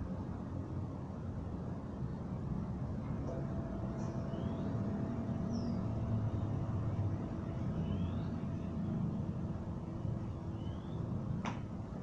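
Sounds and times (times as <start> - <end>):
thin steady tone: 0.0 - 11.4
low background rumble: 0.0 - 12.0
faint rising chirps: 3.3 - 11.4.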